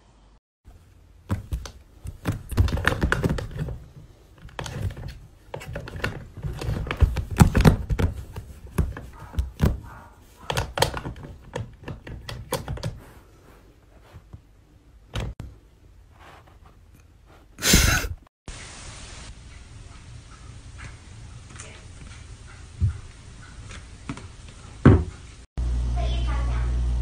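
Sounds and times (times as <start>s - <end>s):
clicks and knocks of handling: 1.3s - 13.0s.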